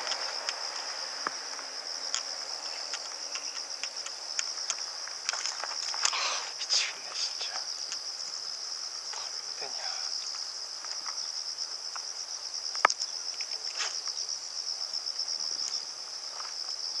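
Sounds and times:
insects trilling: 0:00.0 - 0:17.0.

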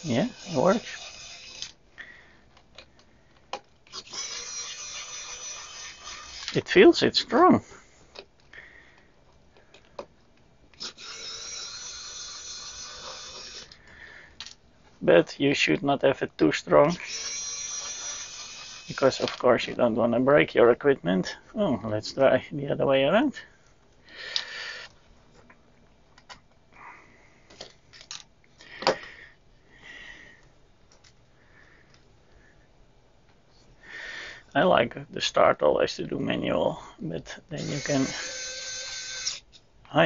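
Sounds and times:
electric screwdriver motor whine: 0:00.0 - 0:01.8, 0:37.6 - 0:39.5.

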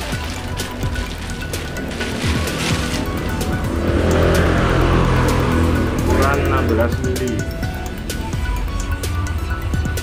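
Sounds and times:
background music with low bass: 0:00.0 - 0:10.0.

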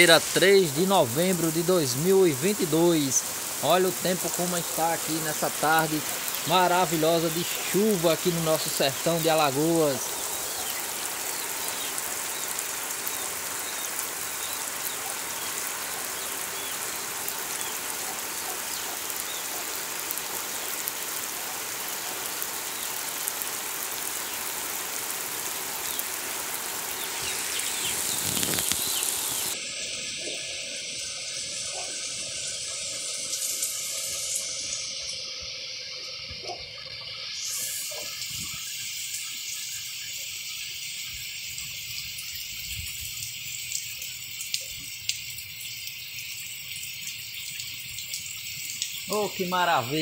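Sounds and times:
heavy rain pouring: 0:00.0 - 0:34.9.

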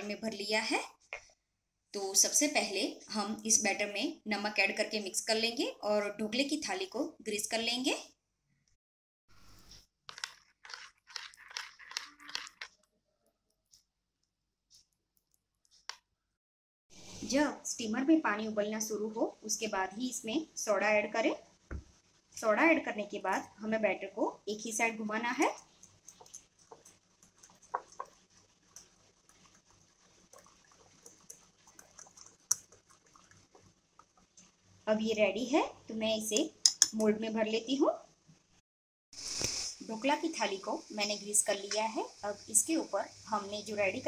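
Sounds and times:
spoon scraping glass bowl: 0:10.1 - 0:12.8
whisk ticking against glass bowl: 0:25.8 - 0:34.3
faint spoon taps: 0:36.4 - 0:37.0.

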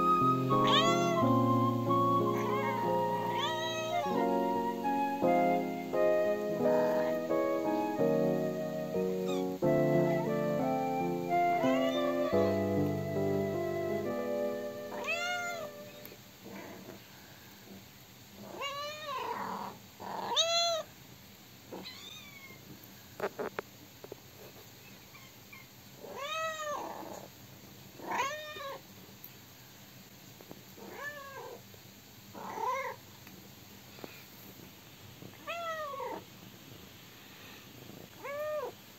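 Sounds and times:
kitten meowing: 0:00.5 - 0:04.9, 0:06.6 - 0:07.3, 0:09.2 - 0:09.6, 0:11.6 - 0:13.0, 0:14.9 - 0:16.1.

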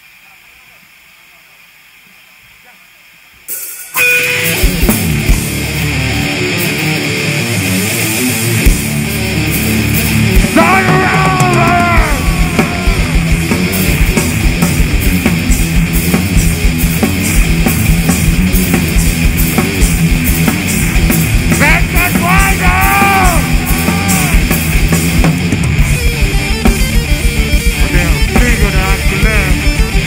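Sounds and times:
heavy rock band playing: 0:03.5 - 0:30.0
high sliding guitar notes: 0:03.6 - 0:30.0
rapid kick drum beats: 0:08.7 - 0:30.0.

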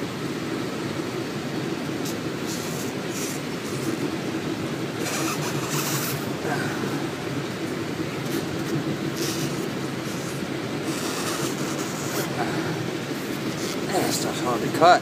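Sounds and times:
low mechanical rumble: 0:00.0 - 0:15.0
knife cutting rubber: 0:09.2 - 0:12.4.

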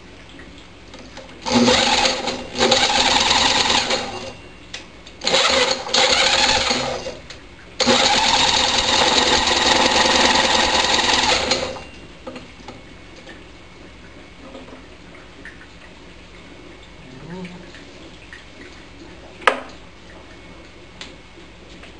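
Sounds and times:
electric drill whirring: 0:01.4 - 0:04.3, 0:05.2 - 0:07.2, 0:07.8 - 0:11.8.

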